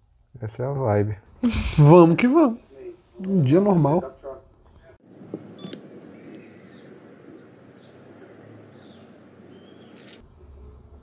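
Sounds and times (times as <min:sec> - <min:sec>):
background hiss: 0:00.0 - 0:06.9
small birds chirping: 0:06.0 - 0:11.0.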